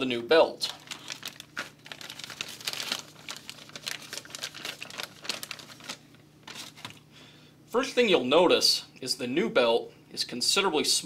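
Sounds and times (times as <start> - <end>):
plastic bag crinkling: 0.6 - 7.0.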